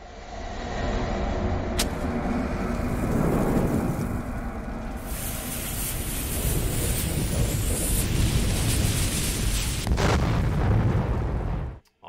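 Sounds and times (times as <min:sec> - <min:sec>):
low rumble: 0:00.0 - 0:11.8
fuse and flames hissing: 0:01.8 - 0:11.8.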